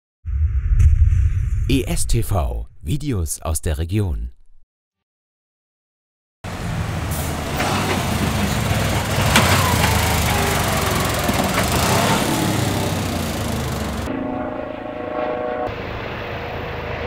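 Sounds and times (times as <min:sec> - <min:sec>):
fire engine driving past: 0:06.5 - 0:17.0
helicopter whine overhead: 0:07.8 - 0:17.0.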